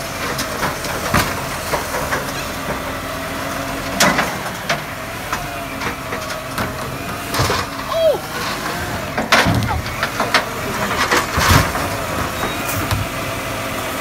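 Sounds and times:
garbage truck whine: 0.0 - 14.0
bin clattering: 6.6 - 7.8.

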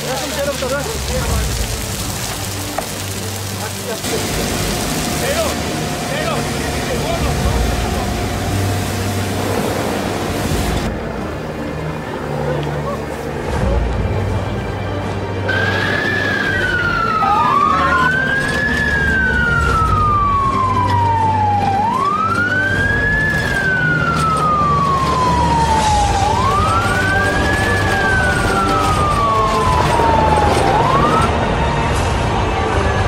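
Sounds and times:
fire engine siren wailing: 15.5 - 33.0.

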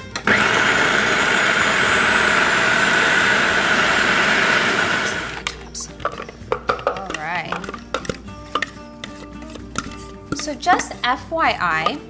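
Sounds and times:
food processor motor running: 0.2 - 5.4.

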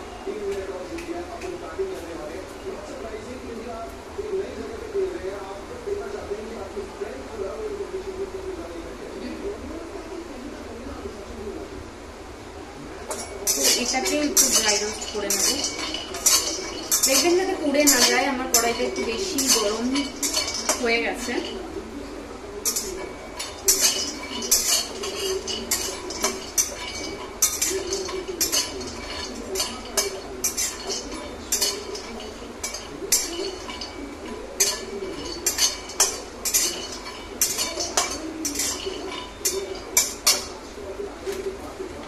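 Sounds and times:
metal spatula scraping metal pan: 13.1 - 21.9, 22.6 - 40.7.

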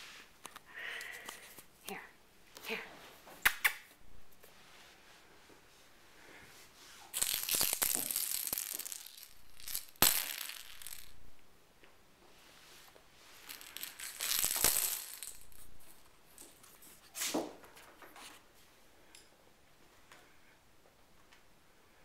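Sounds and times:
kittens rustling and scrabbling: 12.4 - 18.7.

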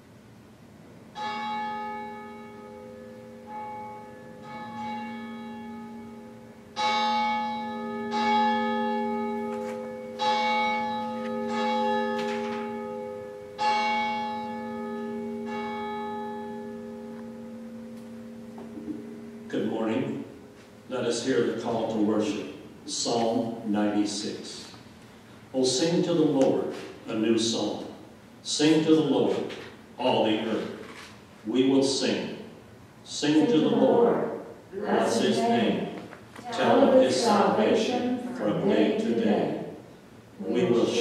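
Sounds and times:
church bell ringing: 1.1 - 22.8, 32.0 - 39.8, 40.5 - 41.0.

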